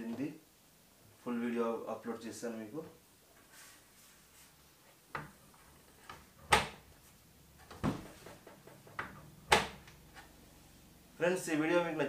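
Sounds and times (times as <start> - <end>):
washing machine door shutting: 9.0 - 9.8.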